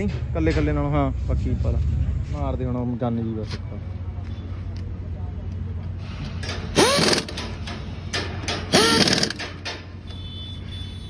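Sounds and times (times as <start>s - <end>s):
pneumatic impact wrench: 6.3s - 9.9s.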